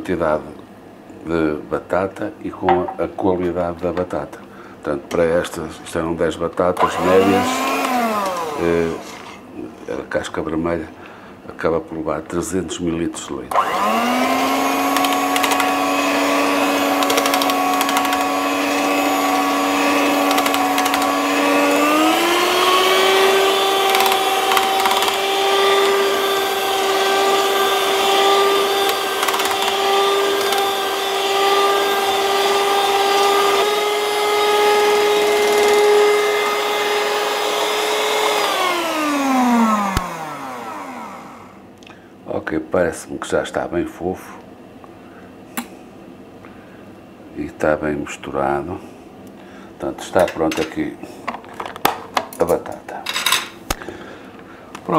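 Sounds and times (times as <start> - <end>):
electric mixer whining: 6.8 - 9.4, 13.5 - 41.6.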